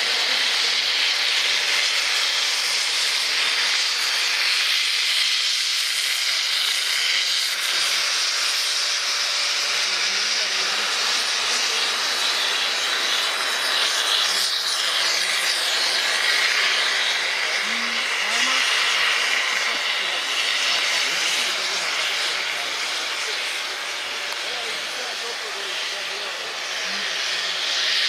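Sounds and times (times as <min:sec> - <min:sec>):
steam locomotive venting steam: 0:00.0 - 0:28.0.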